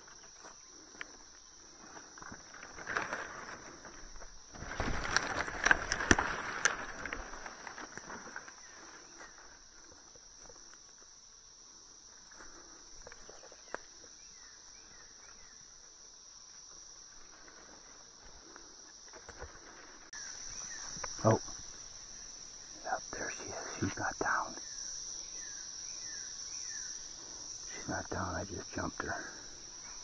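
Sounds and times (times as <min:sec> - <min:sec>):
high-pitched insect chorus: 0:00.0 - 0:30.0
rustling in brush: 0:01.6 - 0:10.6
twigs snapping: 0:01.9 - 0:09.5.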